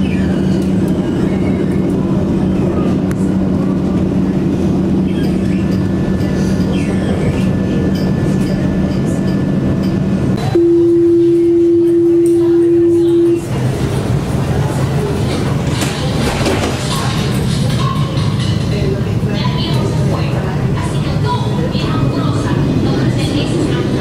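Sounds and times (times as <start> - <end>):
tram rolling with electric hum: 0.0 - 24.0
loud steady single tone: 10.4 - 13.5.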